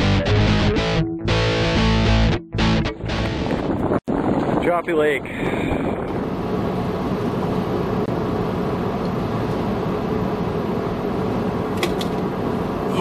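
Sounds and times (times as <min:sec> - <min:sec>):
car cabin engine rumble: 0:03.6 - 0:13.0.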